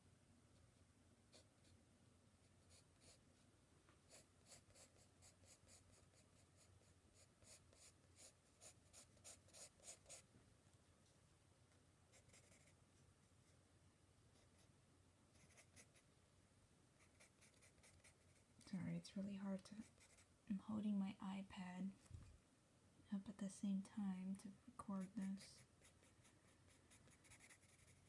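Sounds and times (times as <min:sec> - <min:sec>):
pencil scratching on paper: 0:02.6 - 0:03.2, 0:04.1 - 0:10.2, 0:12.1 - 0:12.8, 0:15.4 - 0:16.0, 0:17.0 - 0:18.4, 0:19.8 - 0:20.3, 0:25.0 - 0:28.0.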